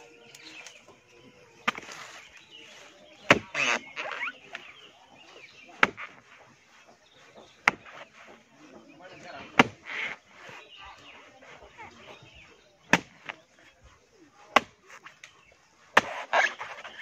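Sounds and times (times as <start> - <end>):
machete chopping wood: 1.6 - 2.0, 3.2 - 4.7, 5.7 - 6.3, 7.6 - 8.2, 9.4 - 10.2, 12.8 - 13.4, 14.4 - 15.1, 15.8 - 17.0.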